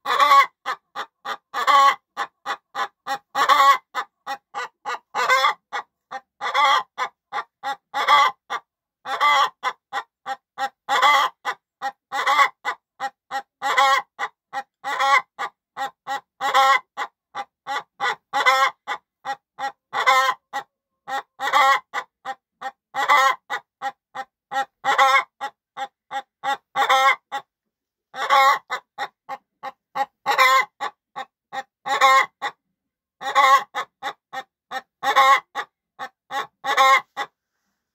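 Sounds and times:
loud hen call: 0.0s - 14.3s, 14.9s - 17.0s, 17.7s - 22.1s, 23.0s - 23.6s, 24.5s - 25.5s, 26.1s - 27.4s, 28.2s - 29.1s, 30.0s - 32.6s, 33.2s - 37.3s
hen clucking: 0.0s - 27.5s, 28.1s - 37.4s.

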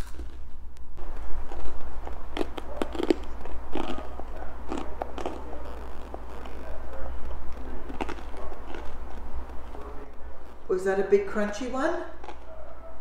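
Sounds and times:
child chewing crunchy snacks: 0.0s - 10.1s, 12.1s - 13.0s.

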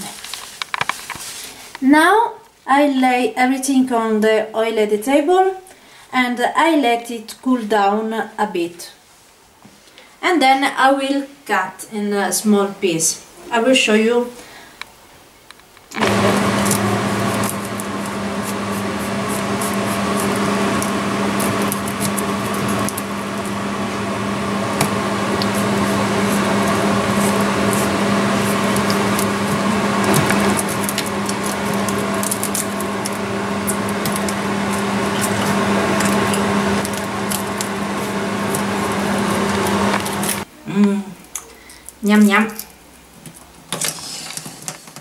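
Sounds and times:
loud mechanical hum: 16.0s - 40.5s.

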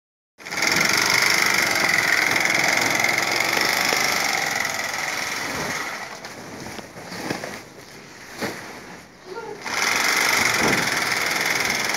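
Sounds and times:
sewing machine whirring: 0.4s - 6.2s, 9.6s - 11.9s.

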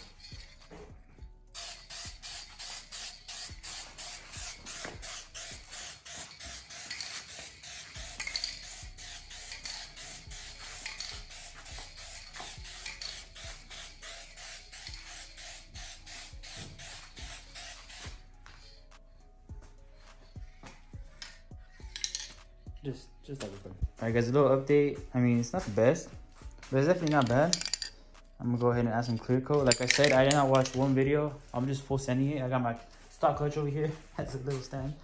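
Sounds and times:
spray-paint can hissing: 1.5s - 19.0s, 21.2s - 22.5s.

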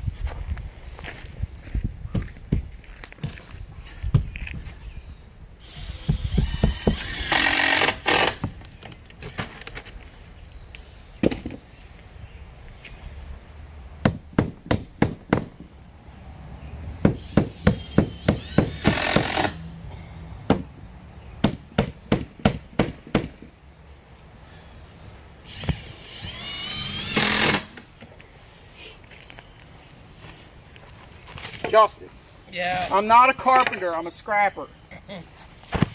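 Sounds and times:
hammer striking wood and nails: 6.0s - 8.6s, 14.0s - 15.7s, 17.0s - 19.6s, 20.5s - 20.8s, 21.4s - 23.5s, 25.6s - 27.8s.

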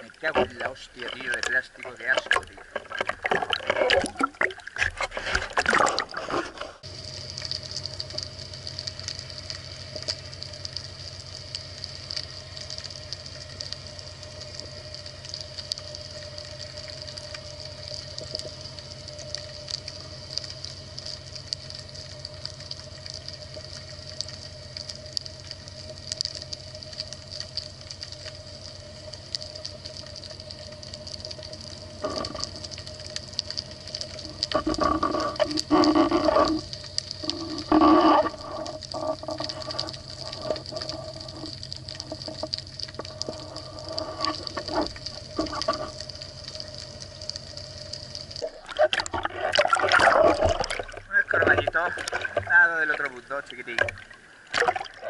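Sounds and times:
surface water noise: 0.0s - 6.8s, 34.2s - 46.0s, 48.4s - 55.0s
faint crackling and ticking: 0.0s - 55.0s
underwater hum: 0.0s - 55.0s.

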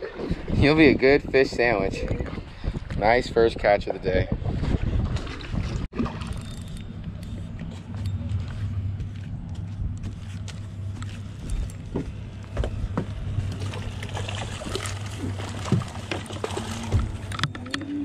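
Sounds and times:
boat motor hum: 4.7s - 18.0s
fish splashing at water surface: 13.5s - 17.3s.

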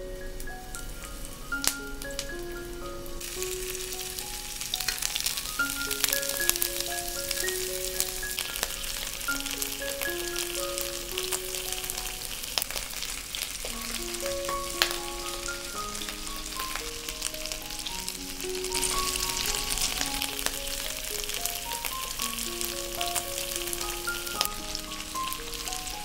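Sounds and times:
food sizzling in hot oil: 0.2s - 26.0s.

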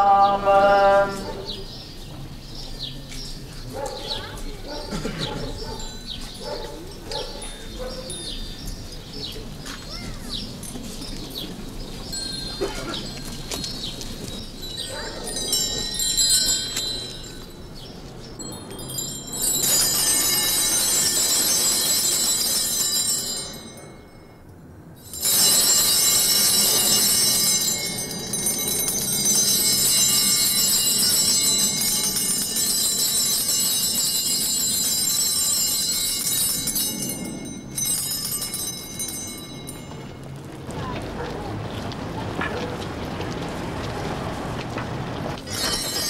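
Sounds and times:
small bells ringing: 5.5s - 40.5s, 45.4s - 46.0s.

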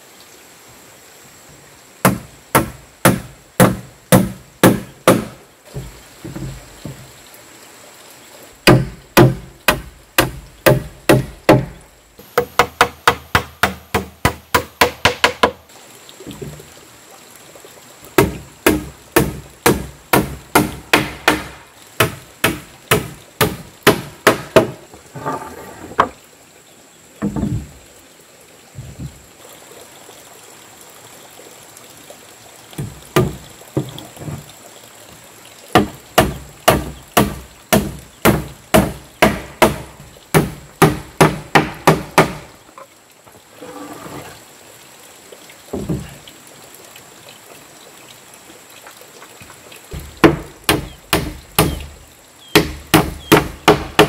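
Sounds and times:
hammer nailing wooden planks: 2.0s - 6.5s, 8.6s - 11.8s, 12.4s - 15.6s, 18.2s - 24.8s, 35.8s - 42.5s, 50.0s - 51.9s, 52.5s - 54.0s.

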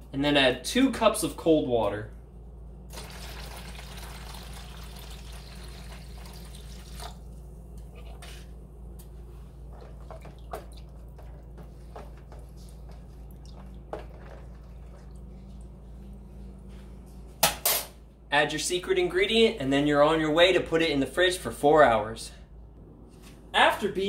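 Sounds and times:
water pouring into plastic bowl: 2.9s - 7.2s.

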